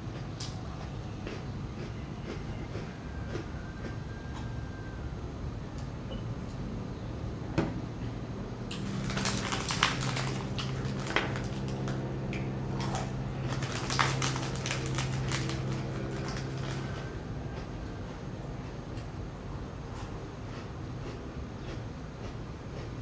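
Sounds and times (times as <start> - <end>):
chewing: 0.1 - 4.5, 8.7 - 19.1, 19.9 - 23.0
plastic wrapper crinkling: 8.7 - 17.1.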